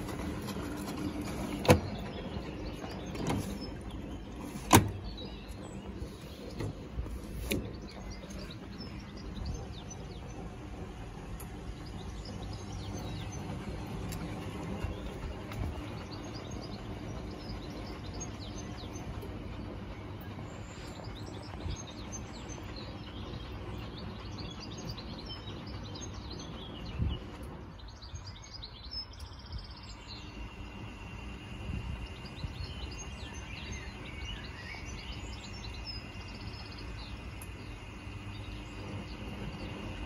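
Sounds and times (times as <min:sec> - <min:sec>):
small birds chirping: 0:00.0 - 0:40.0
washing machine churning: 0:00.0 - 0:40.0
washing machine thump: 0:04.6 - 0:05.1.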